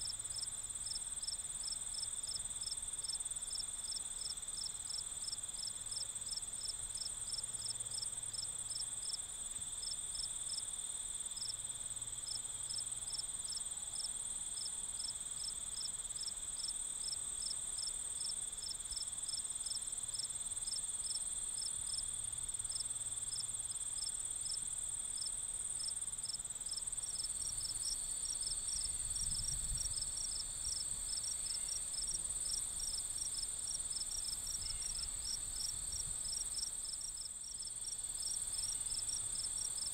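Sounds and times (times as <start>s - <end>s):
insect chirps: 11.4s - 39.9s
high-pitched insect trill: 25.2s - 39.9s
lower insect trill: 25.2s - 39.9s.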